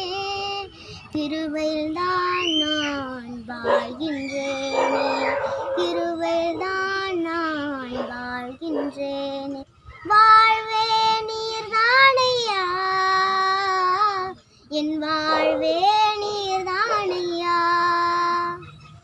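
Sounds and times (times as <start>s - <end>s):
girl singing unaccompanied: 0.0s - 18.8s
girl breathing: 0.7s - 1.1s.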